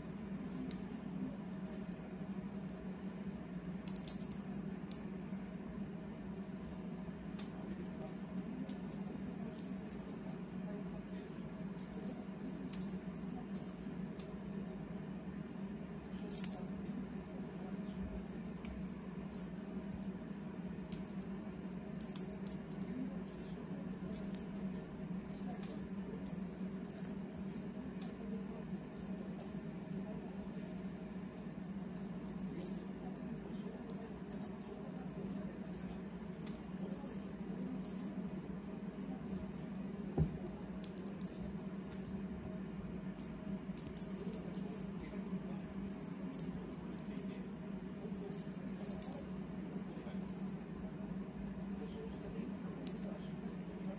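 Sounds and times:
steady low hum: 0:00.0 - 0:53.9
small bell jingling: 0:00.1 - 0:05.1, 0:07.7 - 0:14.4, 0:16.2 - 0:17.4, 0:18.2 - 0:20.1, 0:22.0 - 0:23.0, 0:24.1 - 0:24.5, 0:26.2 - 0:27.7, 0:29.0 - 0:29.7, 0:32.0 - 0:38.2, 0:40.8 - 0:42.2, 0:43.2 - 0:49.4, 0:50.0 - 0:50.6, 0:52.0 - 0:53.9.

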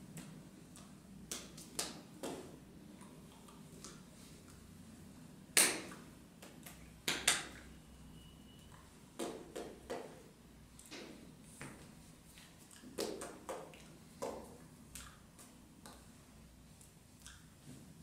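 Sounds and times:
low room hum: 0:00.0 - 0:18.0
hands tapping and clapping: 0:00.2 - 0:02.6, 0:05.6 - 0:07.7, 0:09.2 - 0:10.2, 0:12.8 - 0:16.0.

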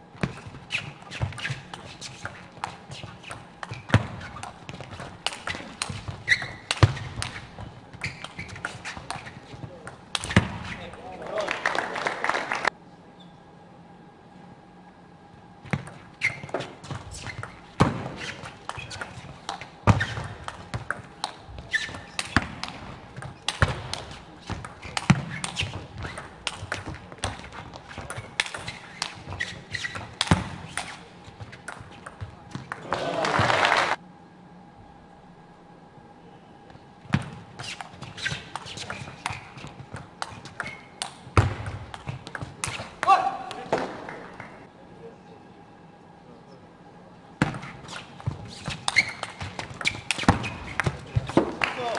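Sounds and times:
shoes squeaking on floor: 0:00.2 - 0:11.1, 0:15.7 - 0:32.7, 0:37.0 - 0:43.9, 0:47.4 - 0:51.9.

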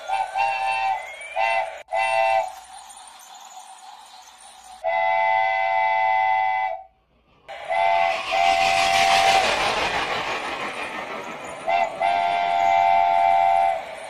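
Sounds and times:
running train rattle: 0:00.0 - 0:03.2, 0:07.1 - 0:14.0
train horn blasts: 0:00.1 - 0:02.5, 0:04.8 - 0:06.9, 0:07.5 - 0:09.4, 0:11.7 - 0:13.9.

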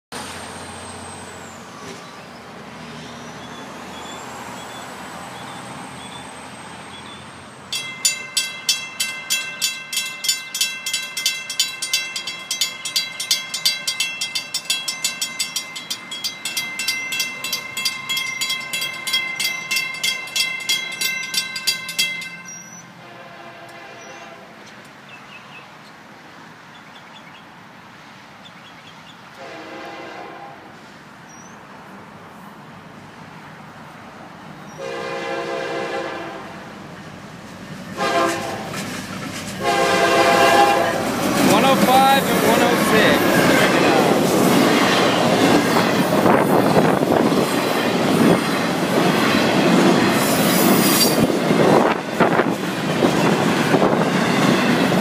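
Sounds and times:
crossing warning bell ringing: 0:06.9 - 0:23.4, 0:39.6 - 0:55.0.

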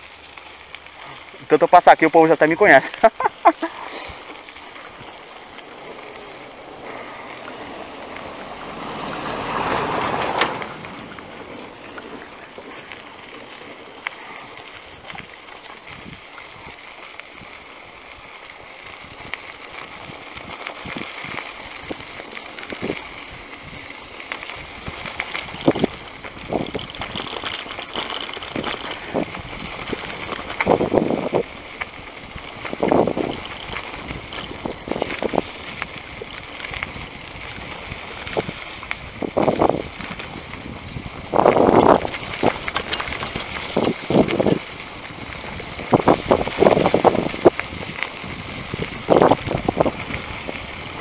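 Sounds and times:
bicycle rattling on rough ground: 0:00.0 - 0:51.0
bicycle tyre hiss and wind: 0:00.0 - 0:51.0.

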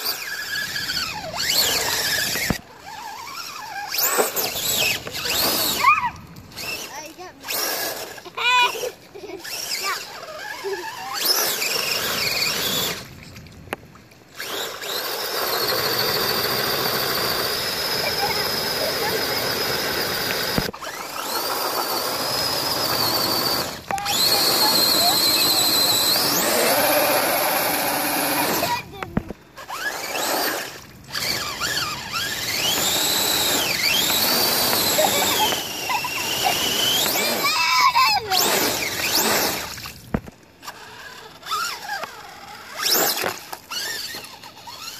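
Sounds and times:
electric motor whining: 0:00.0 - 0:13.1, 0:14.4 - 0:44.9.

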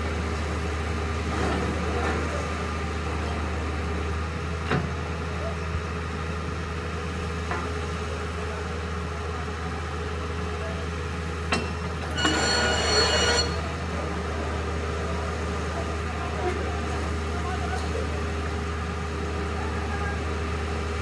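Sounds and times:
drilling rig droning: 0:12.1 - 0:13.7
shrill metallic squeal: 0:12.1 - 0:13.7.

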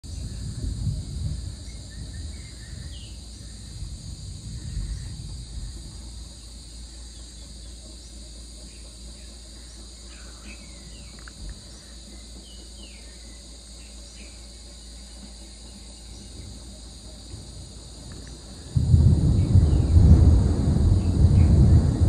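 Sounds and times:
distant thunder rumbling: 0:00.0 - 0:07.6, 0:16.3 - 0:22.0
insects droning: 0:00.0 - 0:22.0.

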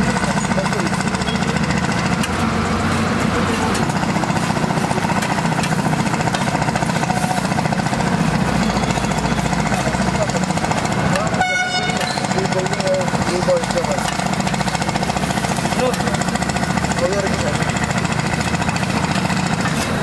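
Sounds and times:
metal spatula clattering on griddle: 0:05.1 - 0:07.0.

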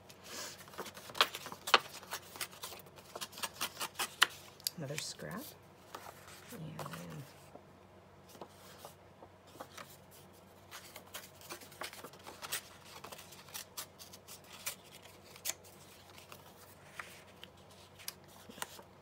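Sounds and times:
scissors snipping paper: 0:01.1 - 0:05.1.

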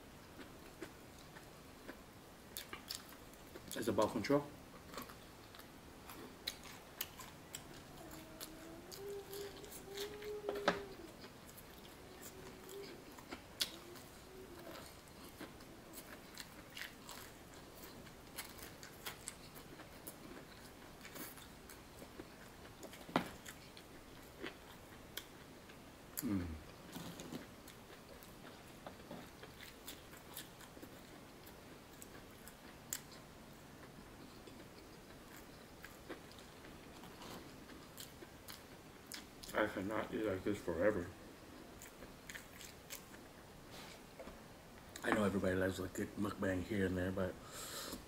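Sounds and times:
chewing crispy food: 0:00.4 - 0:04.1, 0:04.8 - 0:44.0
low vocal sound: 0:26.2 - 0:26.7.

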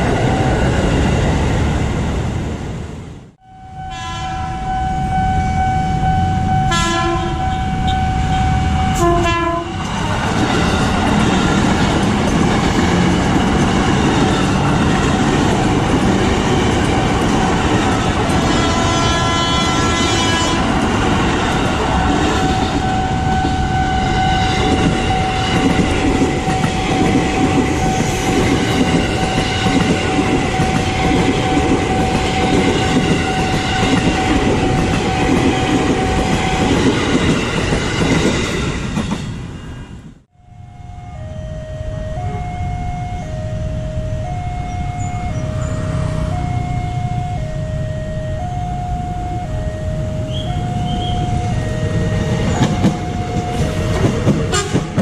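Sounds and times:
train cars rumbling and clattering: 0:00.0 - 0:03.4, 0:05.8 - 0:40.3, 0:49.0 - 0:55.0
train horn blasts: 0:03.4 - 0:12.0, 0:16.8 - 0:20.8, 0:21.9 - 0:27.0, 0:40.3 - 0:55.0.

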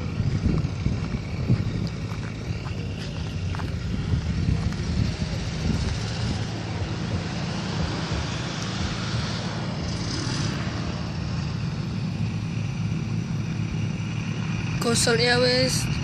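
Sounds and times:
distant twin piston engines droning: 0:00.0 - 0:16.0.

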